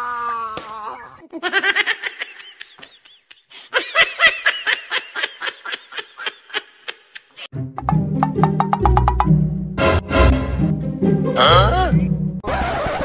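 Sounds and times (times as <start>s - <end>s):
rhythmic ha-ha laughter: 1.4s - 7.4s.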